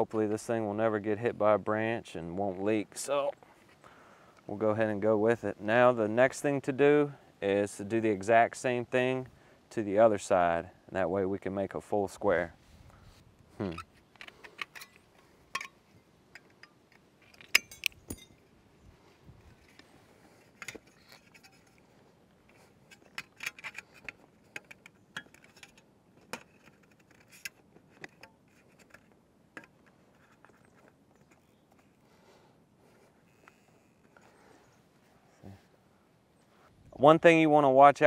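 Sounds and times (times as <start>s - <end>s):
metallic clinks and scrapes: 13.6s - 18.5s, 19.5s - 32.0s.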